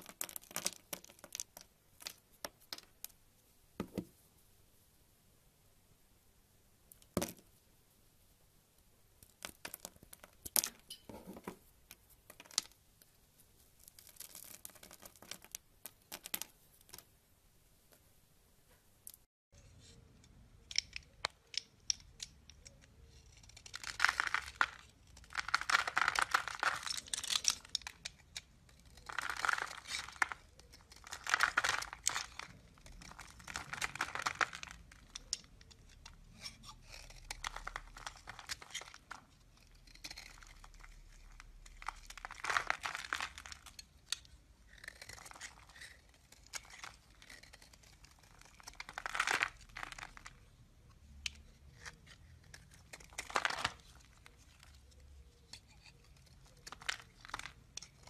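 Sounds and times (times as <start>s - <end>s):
knife blade scraping soap: 43.6s - 49.6s.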